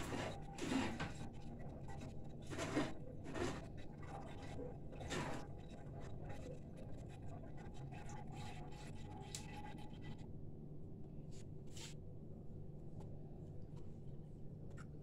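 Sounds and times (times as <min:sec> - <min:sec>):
pulp scraping on metal sieve: 0:00.0 - 0:01.3, 0:01.9 - 0:05.7.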